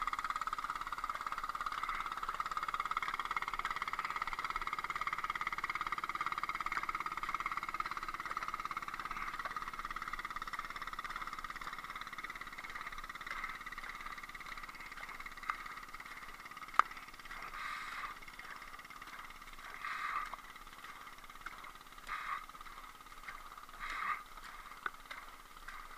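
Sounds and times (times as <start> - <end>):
steady high hum: 0.0 - 25.9.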